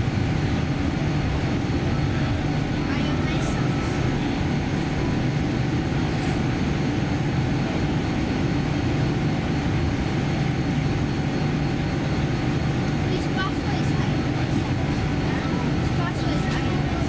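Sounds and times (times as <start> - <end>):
aircraft engines rumbling: 0.0 - 17.0.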